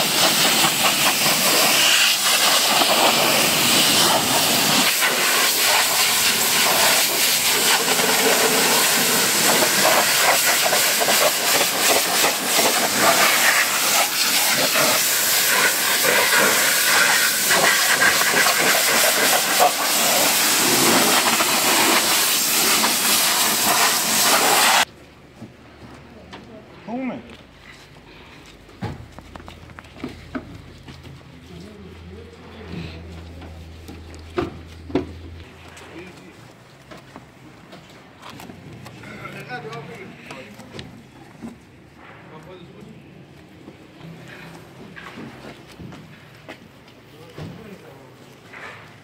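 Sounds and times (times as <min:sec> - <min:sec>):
high-pressure water jet spraying: 0:00.0 - 0:24.9.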